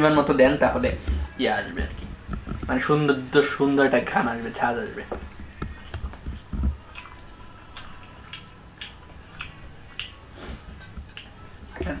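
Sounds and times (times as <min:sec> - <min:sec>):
fingers squishing food: 0:04.1 - 0:12.0
mouth chewing: 0:04.2 - 0:12.0.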